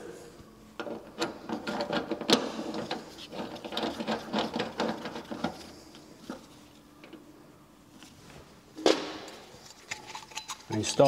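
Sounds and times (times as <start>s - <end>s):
metallic clicks and rattles: 9.6s - 11.0s.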